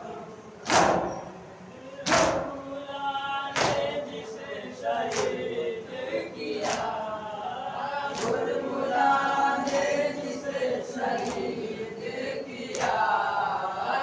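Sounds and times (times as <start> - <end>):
chest slaps: 0.6 - 1.1
men chanting in unison: 1.7 - 14.0.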